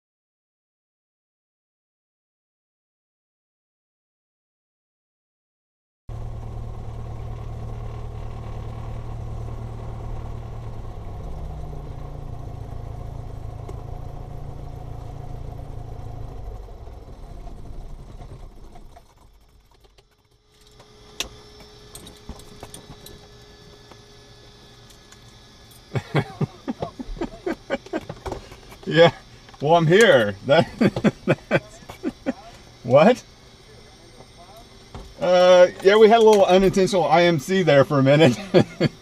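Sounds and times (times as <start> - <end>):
aircraft piston engine idling: 20.6 - 39.0.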